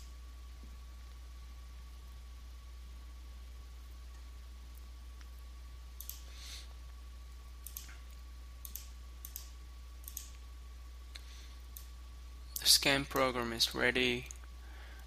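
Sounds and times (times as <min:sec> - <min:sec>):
low electrical hum: 0:00.0 - 0:15.0
computer mouse clicking: 0:06.0 - 0:06.3, 0:07.6 - 0:10.4, 0:11.7 - 0:11.9.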